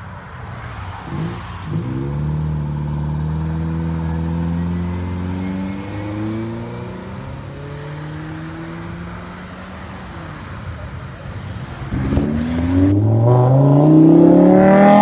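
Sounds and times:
car engine pulling away: 1.1 - 9.8, 11.8 - 15.0.

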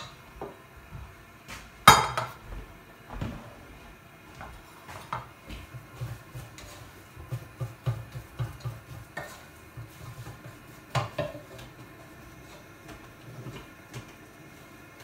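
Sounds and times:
spatula knocking and scraping mash: 4.4 - 14.6.

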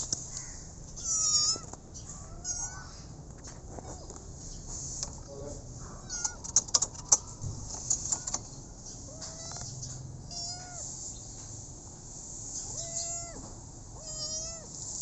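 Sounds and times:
kitten meowing: 1.0 - 3.0, 6.0 - 6.4, 9.1 - 9.7, 10.3 - 10.9, 12.6 - 13.4, 14.0 - 14.8.

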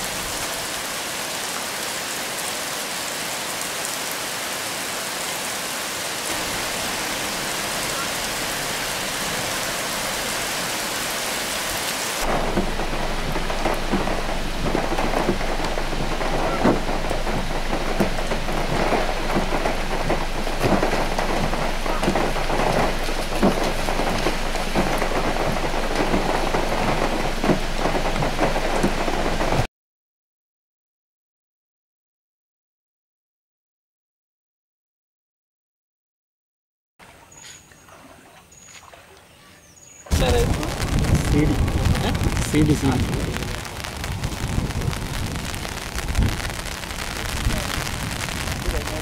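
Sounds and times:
heavy rain: 0.0 - 29.7, 40.1 - 49.0.

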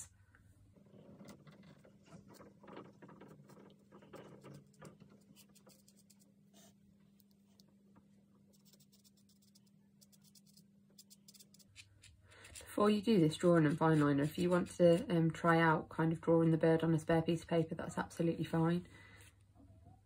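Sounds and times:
pen scratching on paper: 4.4 - 6.8, 8.5 - 15.0.

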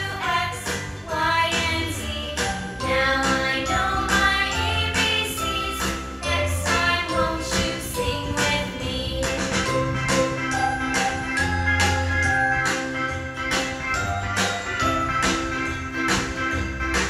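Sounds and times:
music with singing over a beat: 0.0 - 17.0.

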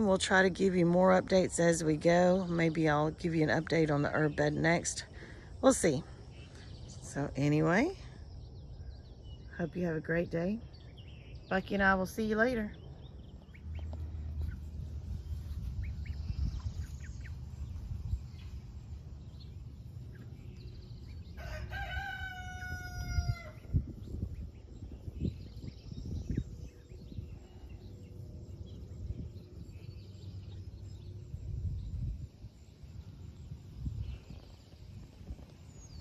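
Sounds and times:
low background rumble: 1.2 - 36.0
rooster crowing: 21.4 - 23.7.

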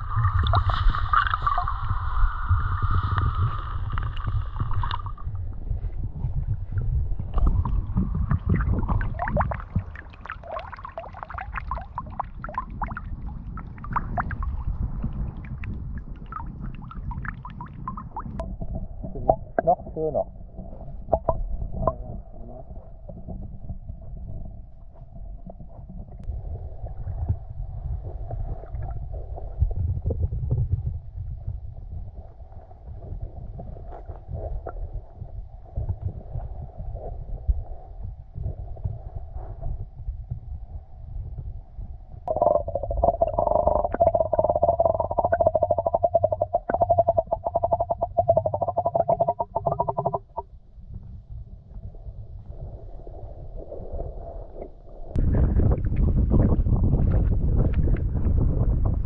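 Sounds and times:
gurgling bubbles: 0.0 - 31.3, 42.2 - 50.5, 51.9 - 59.0
underwater rumbling and sloshing: 0.0 - 59.0.

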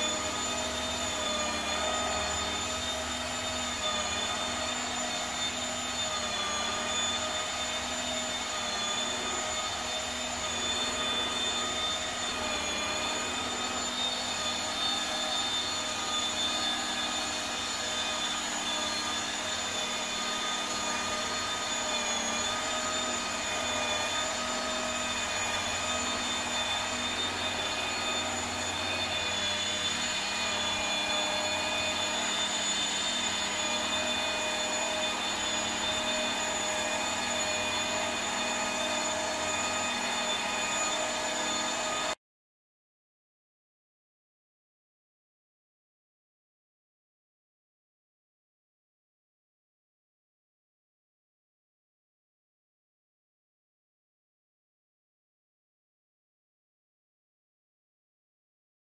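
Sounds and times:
electric motor whining: 0.0 - 42.2.

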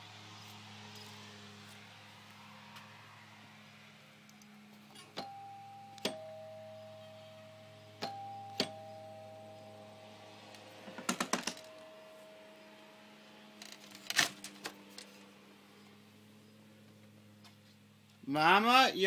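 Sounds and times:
two-tone doorbell chime: 5.2 - 13.6.

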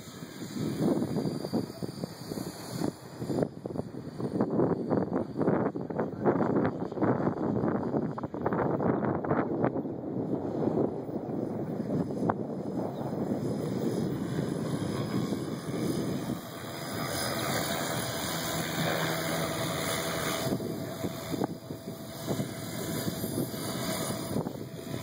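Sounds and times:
helicopter motor and rotors humming: 0.0 - 25.0
wind buffeting microphone: 0.0 - 25.0.

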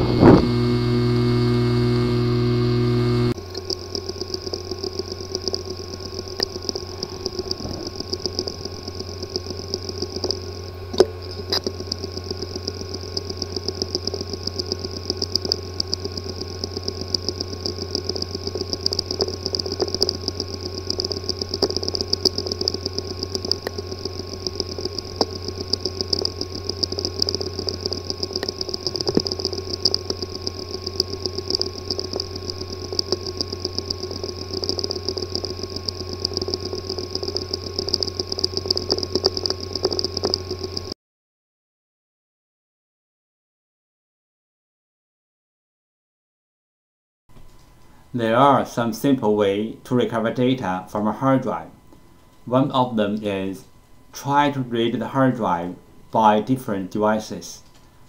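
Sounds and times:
hard disk whirring hum: 0.0 - 41.0, 47.3 - 58.0
rapid fine ticking: 0.0 - 41.0.

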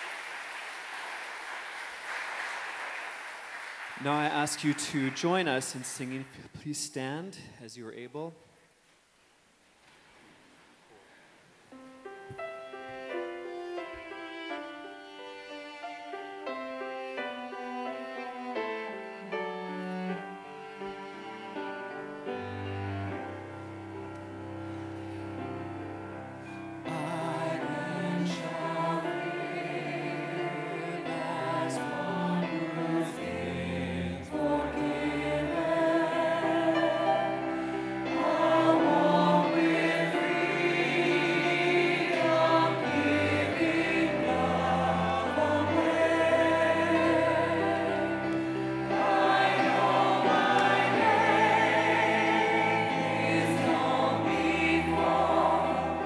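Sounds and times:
instrumental accompaniment: 11.8 - 56.0
choir and congregation singing hymn: 26.5 - 56.0.

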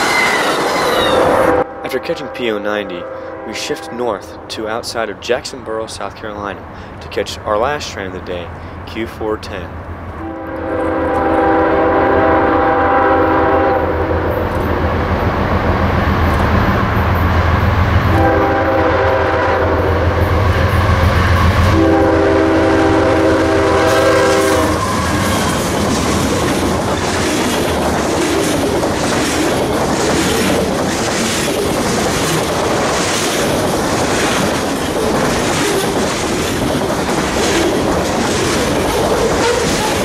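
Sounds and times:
train horn blasts: 1.1 - 4.5, 10.2 - 14.4, 18.1 - 25.6
locomotive rumble: 9.7 - 40.0
train wheels clicking over rail joints: 24.2 - 40.0.

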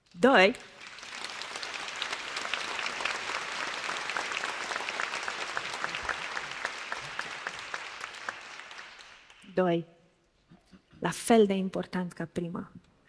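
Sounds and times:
audience applauding: 0.6 - 9.5.

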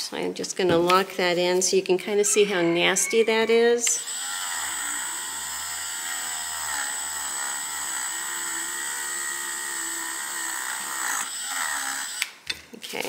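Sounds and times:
rotary tool high whine: 3.6 - 12.2.

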